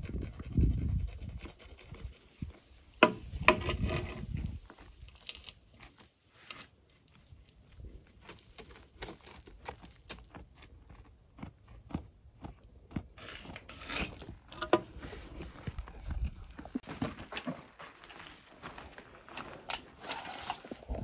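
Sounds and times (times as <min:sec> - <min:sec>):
sheep chewing crunching: 0:07.7 - 0:19.7.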